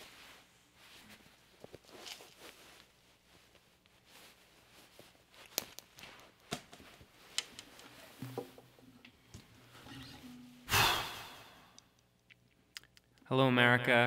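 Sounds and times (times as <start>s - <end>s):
faint rustling: 0.0s - 10.5s.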